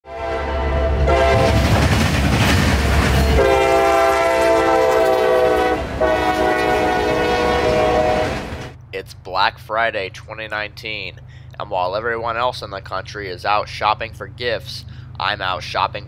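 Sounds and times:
locomotive horn blasts: 0:00.1 - 0:01.7, 0:03.2 - 0:08.8
freight train rumbling on rails: 0:00.1 - 0:08.8.

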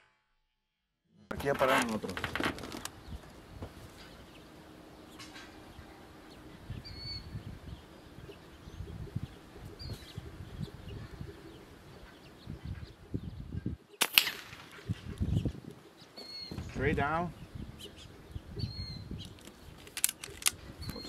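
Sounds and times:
sparrow chirps: 0:02.9 - 0:14.0, 0:14.7 - 0:19.9, 0:20.6 - 0:21.0.

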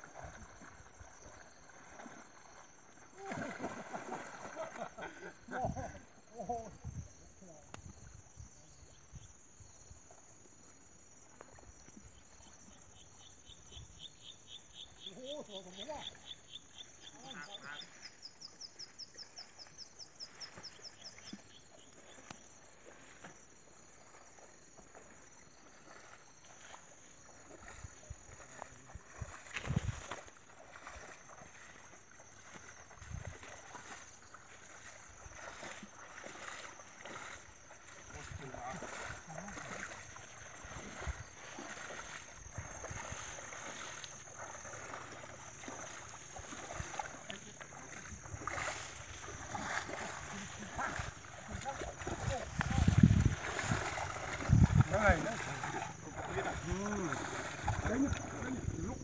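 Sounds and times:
high insect drone: 0:00.0 - 0:59.0
river water sloshing and splashing: 0:00.0 - 0:59.0
wind buffeting microphone: 0:29.1 - 0:30.1, 0:50.8 - 0:55.6.

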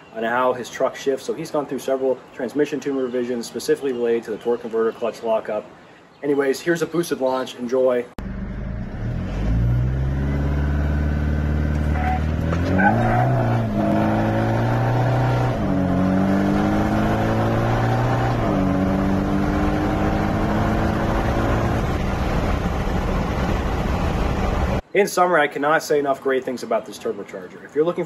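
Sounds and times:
turbodiesel engine accelerating: 0:08.2 - 0:24.8.

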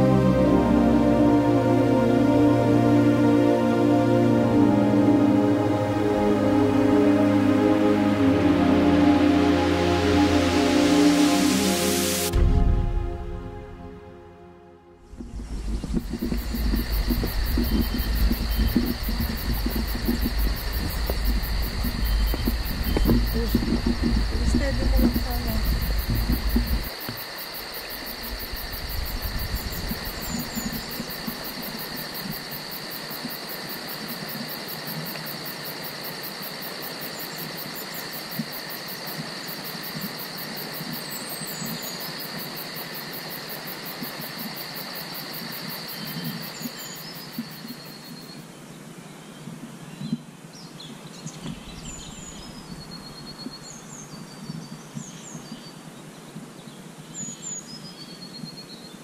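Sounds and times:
high-pitched whine: 0:04.1 - 0:27.0
birds chirping: 0:15.1 - 0:27.0.

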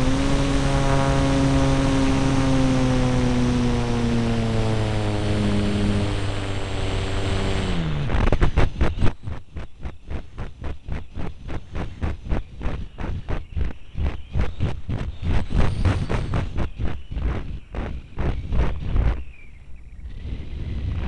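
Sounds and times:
model airplane motor and propeller: 0:00.0 - 0:19.3.

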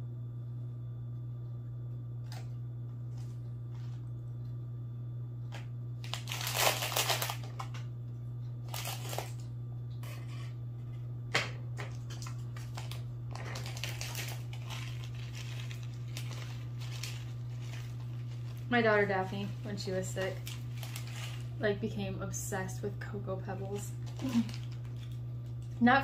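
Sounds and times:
steady low hum: 0:00.0 - 0:26.0
plastic bag crinkling: 0:06.0 - 0:07.8, 0:08.6 - 0:09.4, 0:11.9 - 0:21.6, 0:23.6 - 0:25.8.

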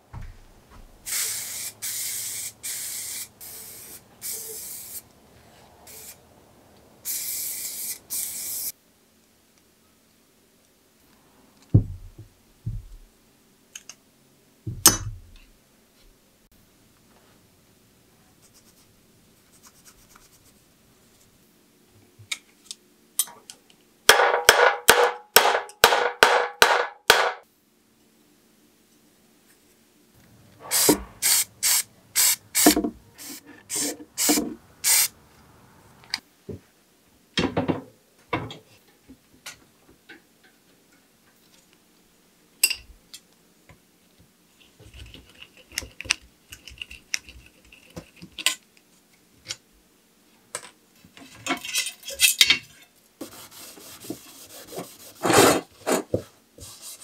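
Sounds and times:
hand sanding on sandpaper: 0:53.2 - 0:55.7, 0:56.6 - 0:57.0.

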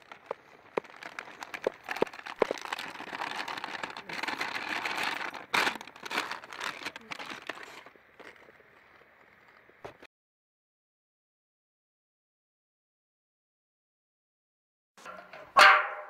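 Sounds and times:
kitchen scraps rustling: 0:00.0 - 0:09.6.

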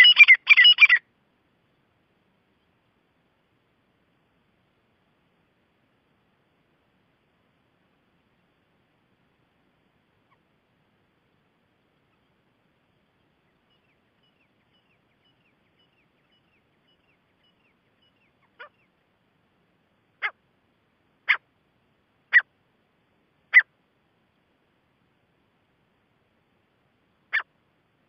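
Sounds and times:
francolin calling: 0:00.0 - 0:01.1, 0:10.0 - 0:10.6, 0:11.2 - 0:19.0, 0:20.2 - 0:20.4, 0:21.2 - 0:21.5, 0:22.2 - 0:22.5, 0:23.5 - 0:23.7.

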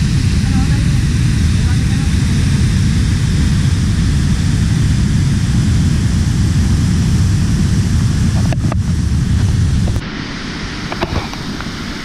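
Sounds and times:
waterfall roaring into a pool: 0:00.0 - 0:12.0.

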